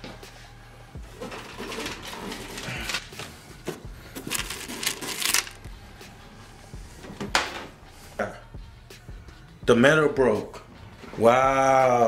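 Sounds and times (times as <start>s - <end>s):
vending machine parts clattering: 1.1s - 5.6s.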